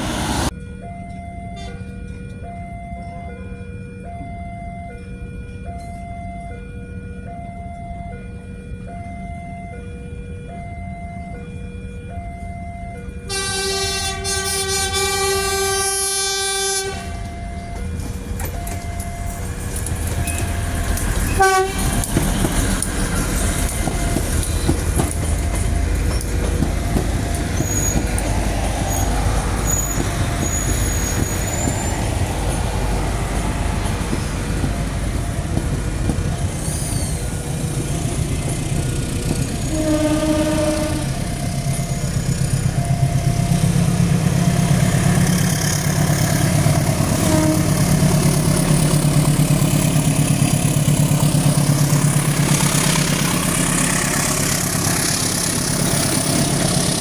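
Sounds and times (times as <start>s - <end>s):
train passing on rails: 0.0s - 4.2s, 8.0s - 57.0s
pulsing diesel engine rumble: 5.8s - 57.0s
train horn: 13.2s - 17.5s, 21.3s - 22.5s, 39.5s - 41.4s, 46.9s - 48.4s.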